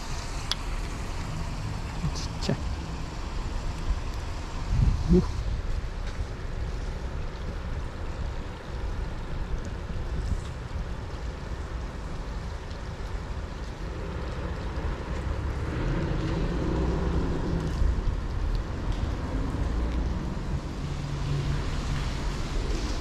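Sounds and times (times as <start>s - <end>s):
low rumble of traffic: 0.0s - 23.0s.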